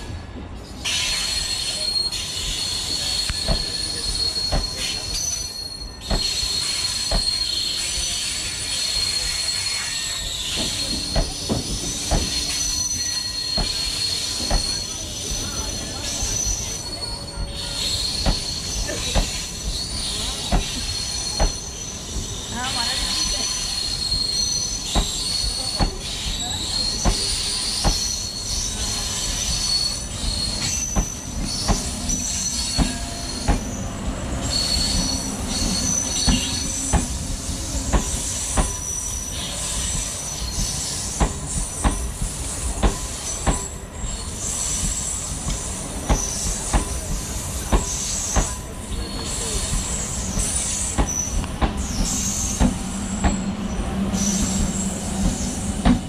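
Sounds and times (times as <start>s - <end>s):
high wheel squeal: 0.6s - 56.0s
train wheels clacking over rail joints: 10.4s - 17.0s, 17.8s - 33.8s, 34.5s - 43.8s, 44.4s - 53.4s.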